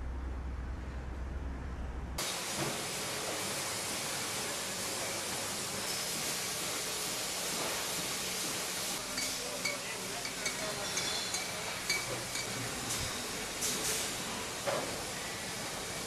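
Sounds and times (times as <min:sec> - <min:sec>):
glass bottles clinking: 0:09.1 - 0:12.6.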